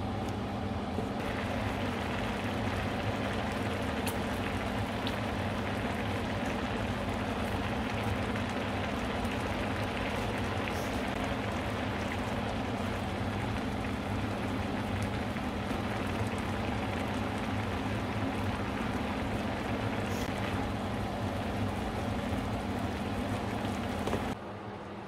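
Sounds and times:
sauce sizzling in a frying pan: 1.2 - 20.6.

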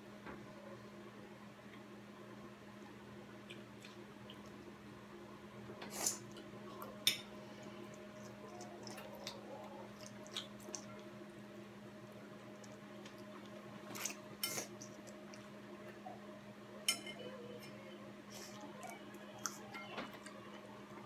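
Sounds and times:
steady low hum: 0.0 - 21.0
chopsticks clinking on ceramic plate: 16.9 - 17.2.

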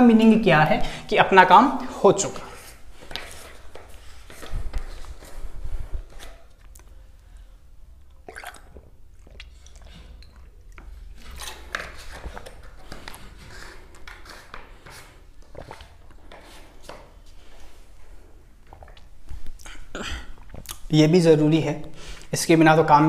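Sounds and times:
man drinking and swallowing: 8.0 - 11.2, 15.4 - 16.2, 18.6 - 20.9.

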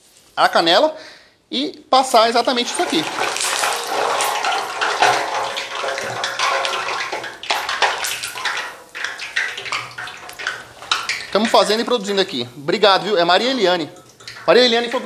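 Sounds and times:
food sizzling in hot oil: 2.0 - 12.9.

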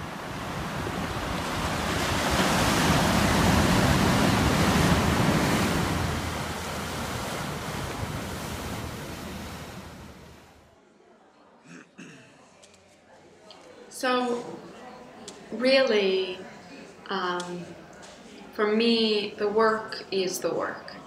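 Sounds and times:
sea surf on rocky shore: 0.0 - 10.6.

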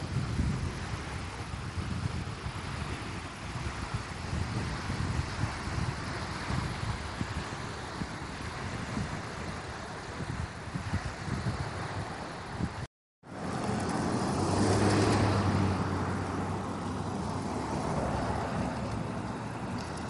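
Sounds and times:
wind buffeting microphone: 0.0 - 20.0
car passing on paved road: 13.2 - 20.0.

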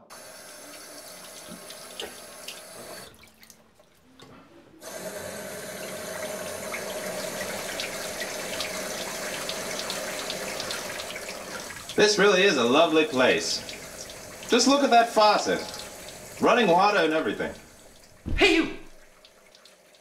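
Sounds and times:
water running from a faucet: 0.0 - 3.6, 4.8 - 20.0.

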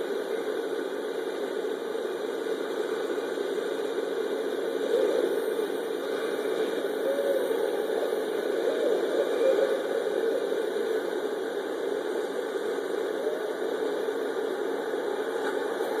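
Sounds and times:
low rumbling noise: 0.0 - 16.0
owl calls: 4.6 - 11.2.

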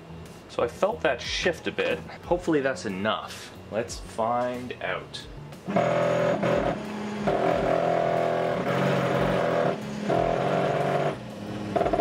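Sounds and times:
stepper motor whine: 5.6 - 12.0.

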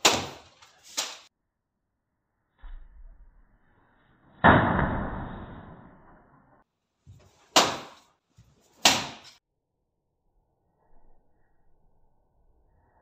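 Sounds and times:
punch smacking newspaper: 0.0 - 1.3, 7.5 - 8.1, 8.8 - 9.4.

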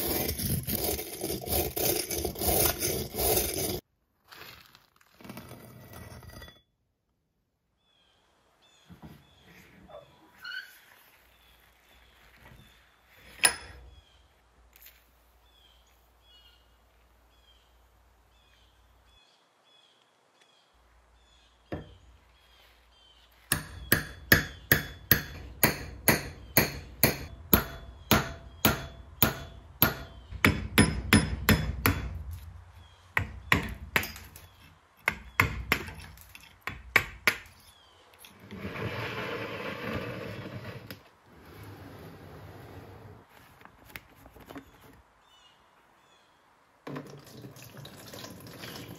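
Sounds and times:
hammer striking steel punch: 23.5 - 32.2.

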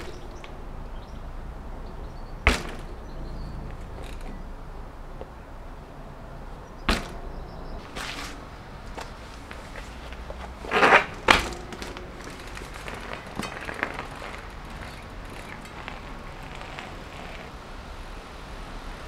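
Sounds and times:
light bike clicks: 0.0 - 5.4, 6.6 - 17.6
loud knocks: 2.4 - 4.4, 6.8 - 8.2.

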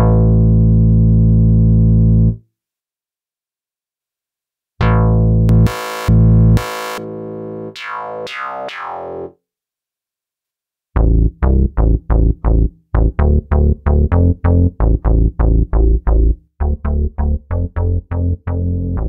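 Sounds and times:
staccato synth bass notes: 4.8 - 9.3, 11.0 - 19.0.

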